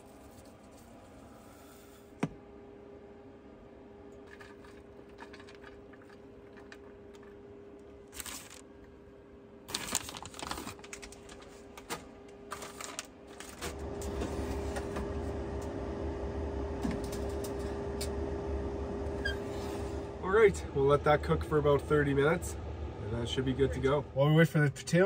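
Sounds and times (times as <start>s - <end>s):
steady low hum: 0.0s - 25.0s
toppings sprinkled clicking and rustling: 4.2s - 8.6s, 9.7s - 14.2s.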